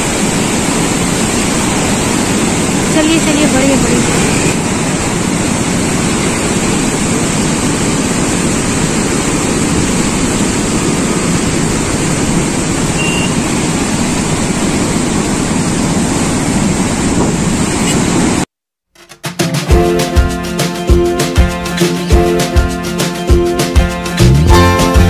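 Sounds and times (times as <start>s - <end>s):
wind buffeting microphone: 0.0s - 18.4s
vehicle and road noise: 0.0s - 18.5s.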